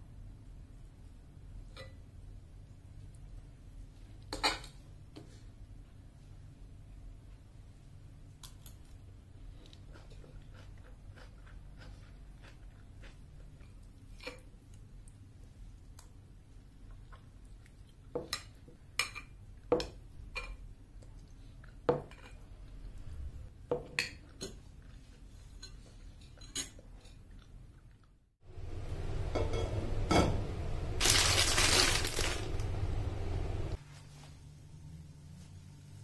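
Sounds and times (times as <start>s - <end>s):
rustling noise: 31.0s - 36.0s.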